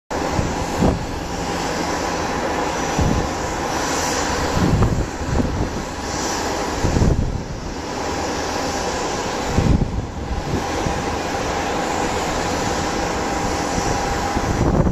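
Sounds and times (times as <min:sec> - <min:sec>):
jet engines rushing hum: 0:00.1 - 0:14.9
wind buffeting microphone: 0:00.1 - 0:14.9.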